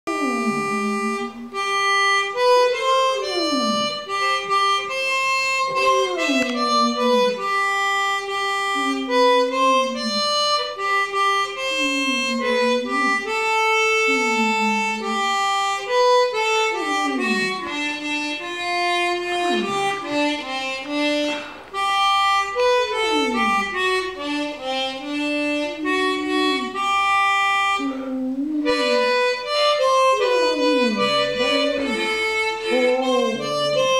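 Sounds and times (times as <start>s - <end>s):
harmonica playing slow chords: 0.1s - 33.9s
dog howling: 3.0s - 4.5s, 5.8s - 7.4s, 25.7s - 26.8s, 30.1s - 33.9s.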